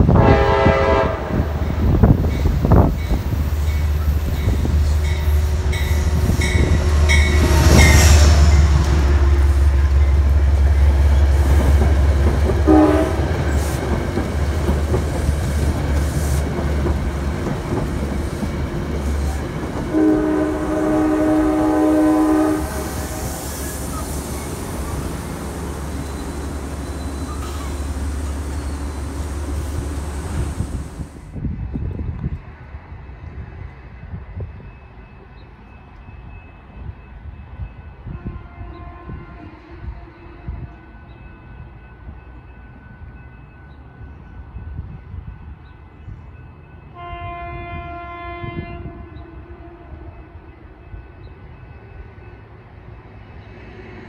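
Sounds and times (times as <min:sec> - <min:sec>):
train horn: 0:00.0 - 0:01.9, 0:04.4 - 0:10.2, 0:12.6 - 0:13.5, 0:19.9 - 0:23.6, 0:38.0 - 0:41.2, 0:46.9 - 0:50.6
diesel locomotive engine rumble: 0:00.0 - 0:54.0
coaches clattering over rails: 0:09.9 - 0:21.2, 0:23.3 - 0:31.1.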